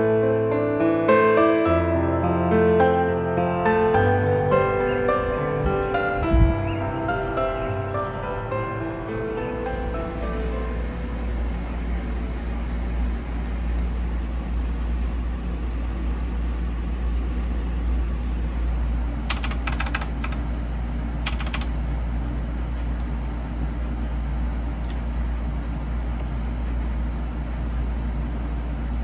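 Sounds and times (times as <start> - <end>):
rushing background rumble: 3.5 - 27.7
rapid key clicks: 19.2 - 20.6, 21.2 - 21.8.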